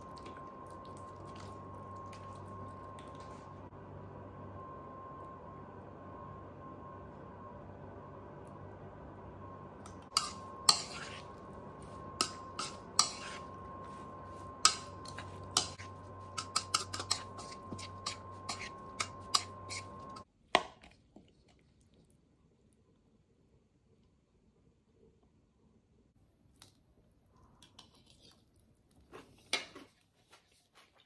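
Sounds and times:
oven hum with high whine: 0.0 - 20.3
metal spoon clinking on bowl: 14.6 - 20.2.

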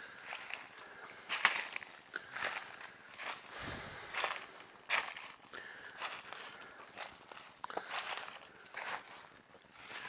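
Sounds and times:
footsteps in dry leaves and rock: 0.0 - 10.0.

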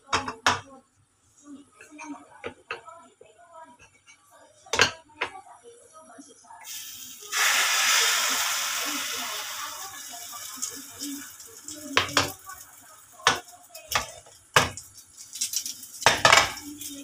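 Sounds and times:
faint egg sizzling in oil: 6.6 - 17.0.

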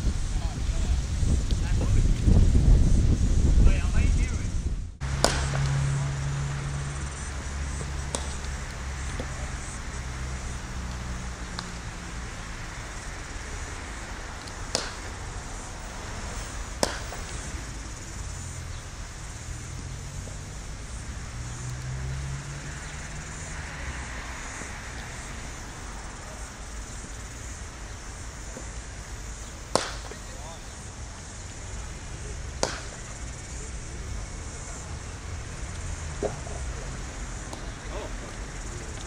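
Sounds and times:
low rumble: 0.0 - 8.1
outdoor background hiss: 0.0 - 39.0
cricket bat striking ball: 5.0 - 6.2, 7.7 - 10.6, 14.4 - 15.3, 16.7 - 17.6, 29.6 - 30.4, 32.5 - 33.2.

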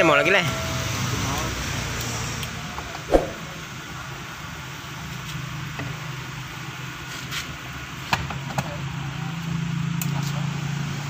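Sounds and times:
low hum: 3.1 - 3.6.

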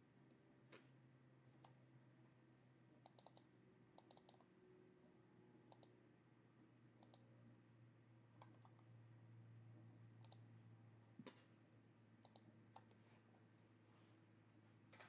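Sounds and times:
computer mouse clicks: 1.5 - 1.8, 3.0 - 4.5, 5.7 - 6.0, 7.0 - 7.3, 8.4 - 8.9, 10.2 - 10.5, 12.2 - 13.0.

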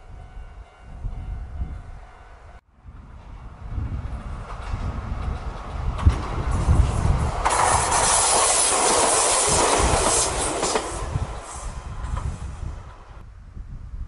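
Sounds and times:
train low rumble: 0.0 - 14.0
train wheels clattering over rail joints: 4.2 - 12.5.

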